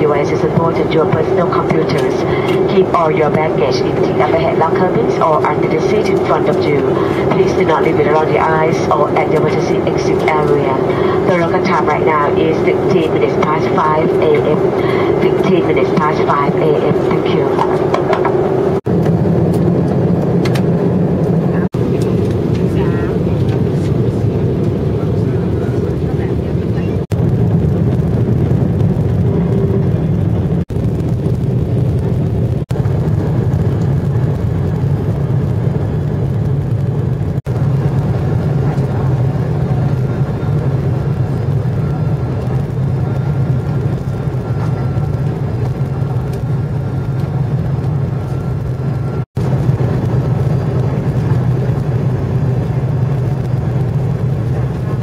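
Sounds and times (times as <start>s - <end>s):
airflow past fuselage: 0.0s - 26.0s
jet engines rumbling: 0.0s - 55.0s.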